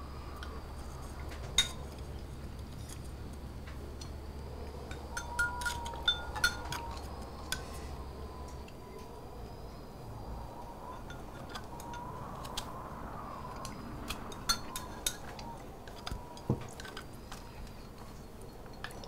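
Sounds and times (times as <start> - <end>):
low room hum: 0.0 - 19.0
chopsticks clinking on bowls: 4.9 - 7.7.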